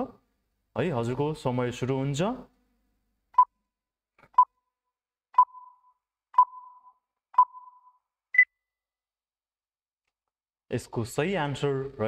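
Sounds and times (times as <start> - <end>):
higher-pitched beep: 5.4 - 8.5
short electronic beeps: 5.4 - 8.5.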